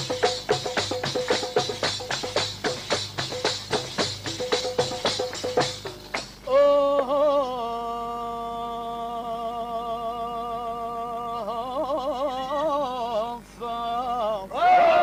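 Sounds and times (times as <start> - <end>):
man singing unaccompanied: 6.4 - 15.0.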